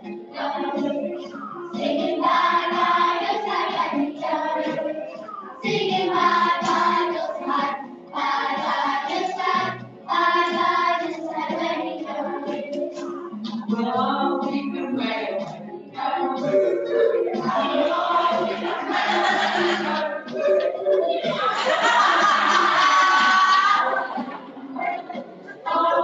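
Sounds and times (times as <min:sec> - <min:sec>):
children's choir singing: 0:00.0 - 0:26.0.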